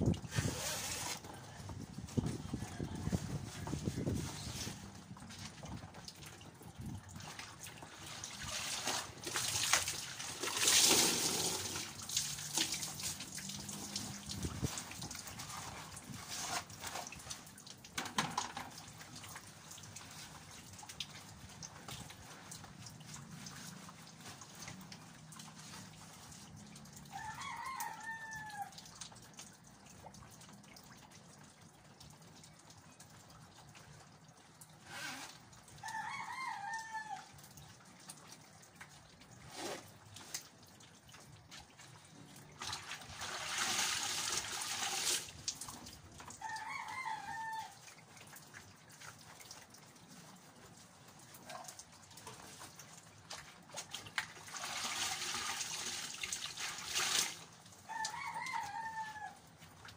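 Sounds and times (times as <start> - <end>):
rooster crowing: 27.1 - 28.7, 35.8 - 37.3, 46.4 - 47.8, 57.9 - 59.4.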